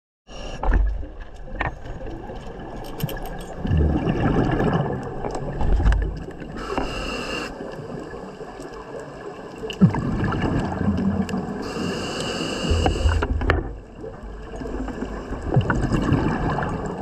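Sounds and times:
exhaled bubbles gurgling underwater: 0:03.5 - 0:17.0
hissing inhale through regulator: 0:06.5 - 0:07.7, 0:11.6 - 0:13.4.

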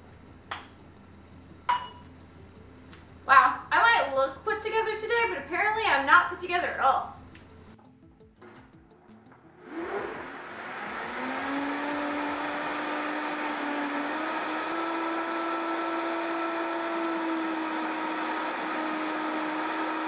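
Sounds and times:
blender motor running: 0:09.6 - 0:20.0.

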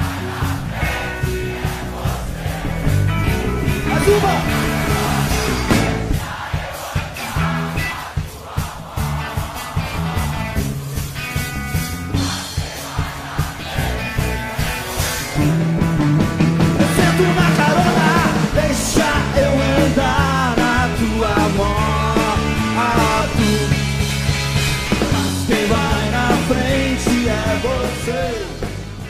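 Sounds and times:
rock band playing: 0:00.0 - 0:29.0
wavering lead guitar melody: 0:02.7 - 0:06.1, 0:14.0 - 0:29.0.

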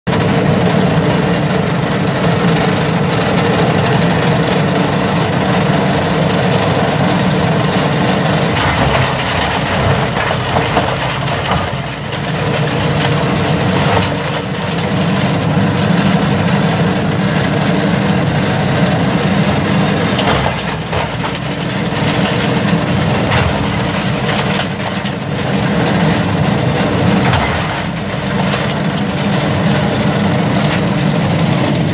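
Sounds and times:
tractor engine running: 0:00.1 - 0:31.9
wood cracking and crunching: 0:04.7 - 0:31.9.

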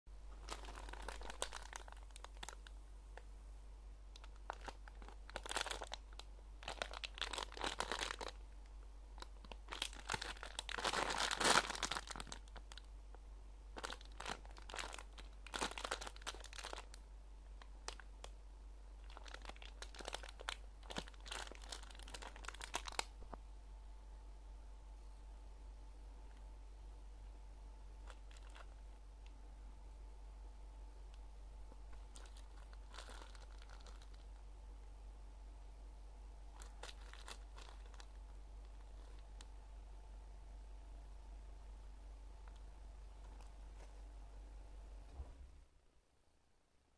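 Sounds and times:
faint low hum: 0:00.1 - 0:46.9
plastic bag crinkling: 0:00.2 - 0:02.8, 0:04.1 - 0:12.9, 0:13.7 - 0:18.4, 0:19.0 - 0:23.4, 0:28.0 - 0:29.0, 0:31.8 - 0:34.4, 0:36.5 - 0:39.5, 0:43.2 - 0:44.1.

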